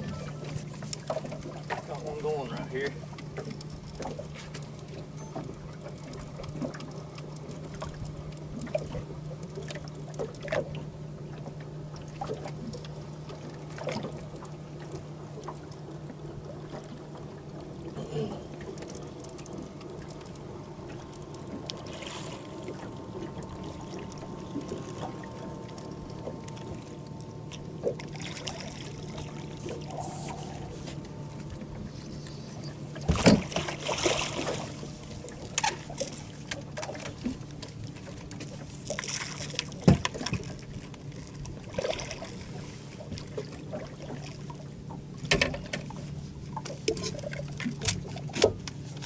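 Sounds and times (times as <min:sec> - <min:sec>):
low hum: 0:00.0 - 0:49.0
water trickling and lapping: 0:00.0 - 0:49.0
fish splashing: 0:27.8 - 0:31.4, 0:33.0 - 0:37.1.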